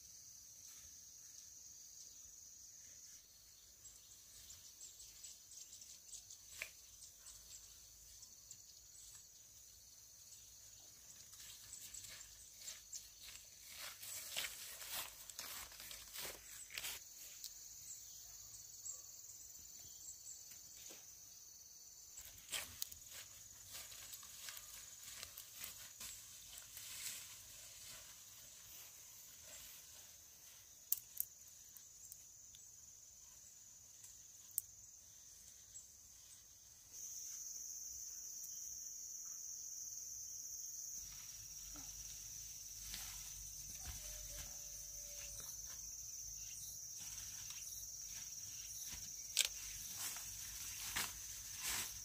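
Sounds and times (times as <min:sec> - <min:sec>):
insects chirring: 0:00.0 - 0:52.0
small rustles: 0:11.0 - 0:17.5, 0:22.2 - 0:32.2, 0:47.0 - 0:52.0.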